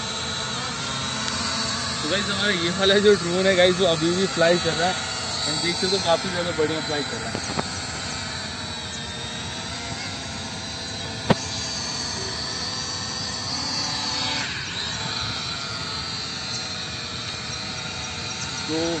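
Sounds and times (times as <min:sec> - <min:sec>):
drone propellers whining: 0:00.0 - 0:19.0
sharp click: 0:07.3 - 0:07.7.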